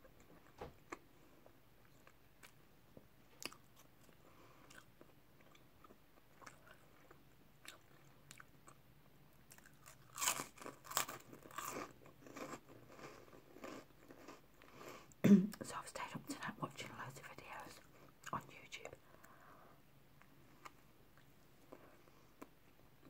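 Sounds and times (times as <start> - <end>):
crunching and chewing snack: 3.3 - 8.8, 9.4 - 15.2.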